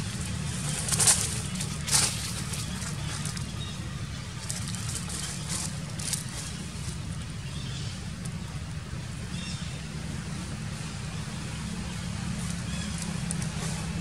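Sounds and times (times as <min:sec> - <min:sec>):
dry leaves rustling and crackling: 0:00.0 - 0:08.4, 0:11.3 - 0:14.0
steady low hum: 0:00.0 - 0:14.0.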